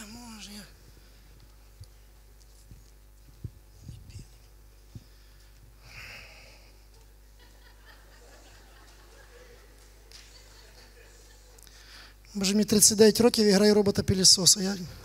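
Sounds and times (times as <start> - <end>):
breathy exhale into microphone: 5.0 - 6.8.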